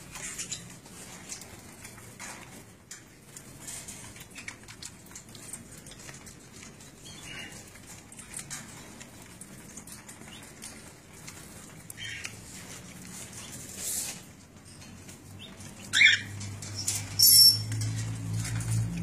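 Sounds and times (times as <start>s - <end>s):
birds pecking clicks and taps: 0.1s - 19.0s.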